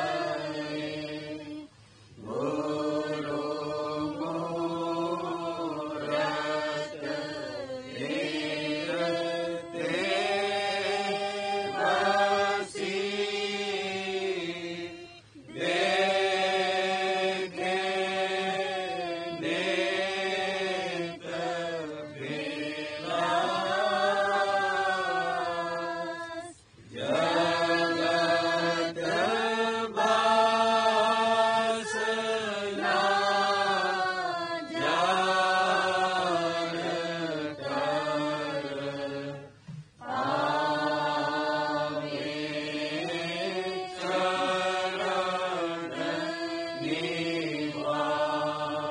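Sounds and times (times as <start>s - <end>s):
devotional hymn chanted: 0.0s - 48.9s.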